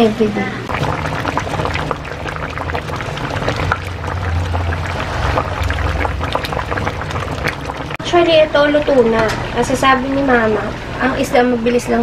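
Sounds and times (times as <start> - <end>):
bubbles popping in simmering pot: 0.7 - 9.0.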